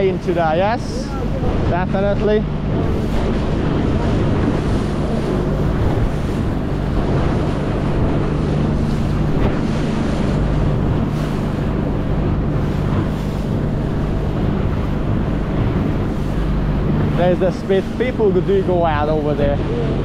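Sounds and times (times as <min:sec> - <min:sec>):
outboard motor running: 0:00.0 - 0:20.0
water splashing against hull: 0:00.0 - 0:20.0
wind noise on microphone: 0:00.0 - 0:20.0.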